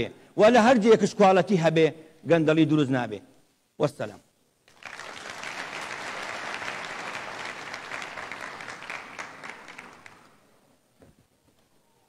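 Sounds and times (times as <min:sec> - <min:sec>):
audience applauding: 0:04.7 - 0:10.5.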